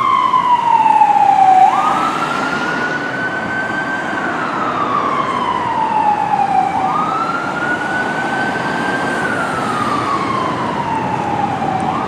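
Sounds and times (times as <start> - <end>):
ambulance siren wailing: 0.0 - 12.0
traffic noise: 0.0 - 12.0.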